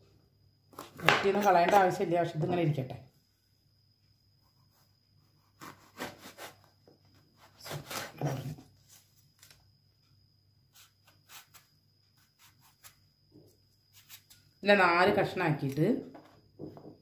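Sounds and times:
knife slicing vegetable: 4.6s - 9.6s, 10.7s - 13.0s.

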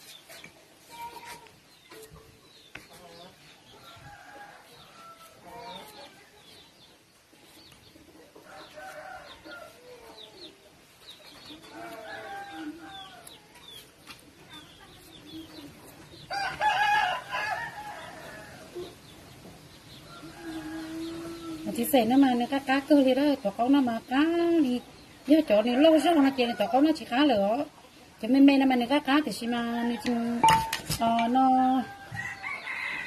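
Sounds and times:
rooster crowing: 16.3s - 18.6s, 32.0s - 33.0s.

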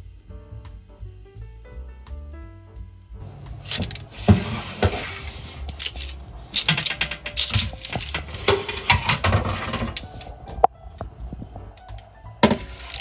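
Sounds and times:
metal tray clattering on oven rack: 3.7s - 10.3s.

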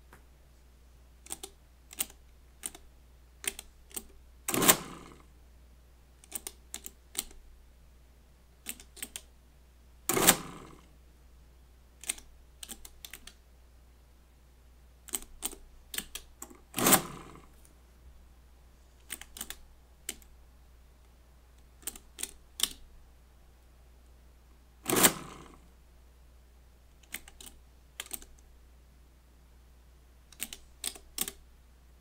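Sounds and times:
mechanical calculator cycling: 1.2s - 2.8s, 3.4s - 5.2s, 6.2s - 7.4s, 8.6s - 9.3s, 10.1s - 10.8s, 12.0s - 13.3s, 15.1s - 17.5s, 19.1s - 20.3s, 21.8s - 22.8s, 24.8s - 25.6s, 27.0s - 28.4s, 30.3s - 31.4s
calculator keys clicking: 1.3s - 2.8s, 3.4s - 4.8s, 6.2s - 7.4s, 8.7s - 9.3s, 12.0s - 13.4s, 15.1s - 17.0s, 19.1s - 20.2s, 21.8s - 22.8s, 27.0s - 28.4s, 30.3s - 31.4s.

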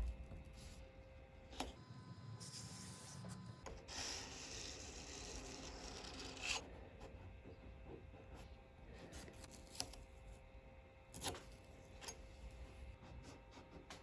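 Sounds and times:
razor blade scraping surfboard: 3.9s - 6.6s.

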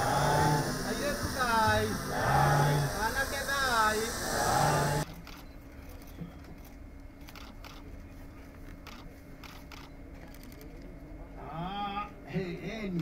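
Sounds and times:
faint steady hum: 0.0s - 6.1s.

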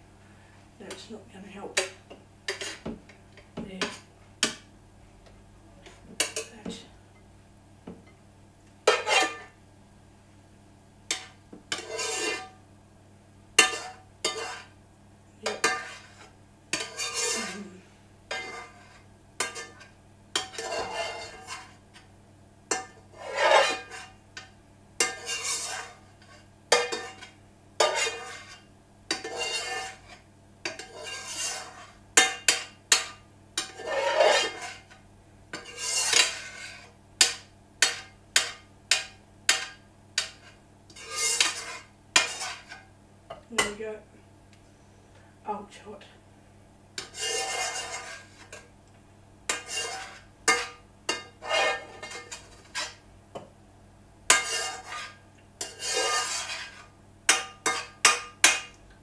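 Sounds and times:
utensil scraping frying pan: 1.8s - 2.9s, 8.8s - 9.6s, 11.1s - 12.6s, 13.6s - 14.8s, 15.4s - 22.1s, 22.7s - 42.9s, 47.0s - 48.8s, 49.5s - 53.1s, 54.3s - 58.8s
metal clinking on pan: 49.5s - 53.0s, 54.3s - 58.8s.

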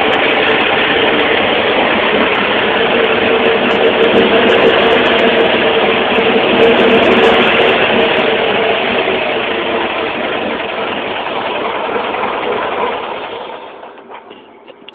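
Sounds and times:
six-cylinder engine running: 0.0s - 14.9s.

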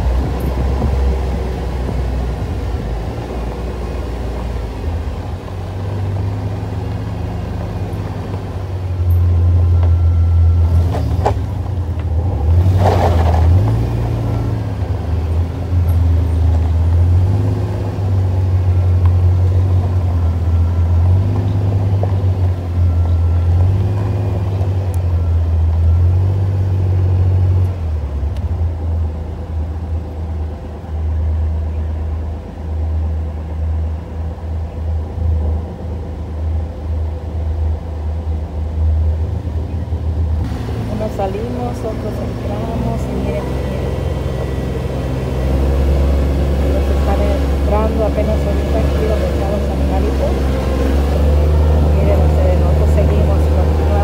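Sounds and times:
atv engine droning: 0.0s - 54.0s.

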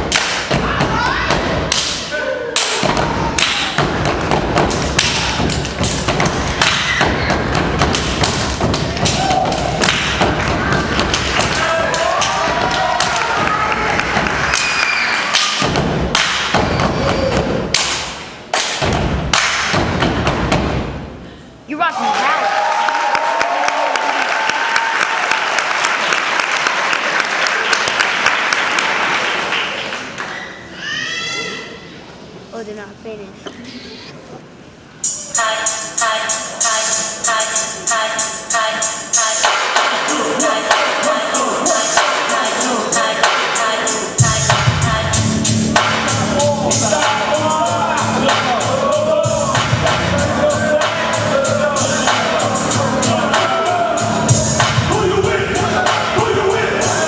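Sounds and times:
hands clapping: 0.1s - 0.5s, 3.4s - 3.8s, 5.0s - 6.9s, 7.8s - 16.6s, 17.7s - 19.8s, 22.9s - 30.4s
high shouts: 0.5s - 1.5s, 6.6s - 7.6s, 8.9s - 9.9s, 10.5s - 15.7s.

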